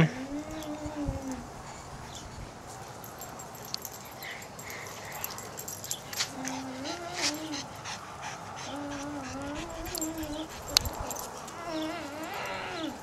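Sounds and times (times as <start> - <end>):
dog whining: 0.0 - 1.5, 3.6 - 7.7, 8.6 - 13.0.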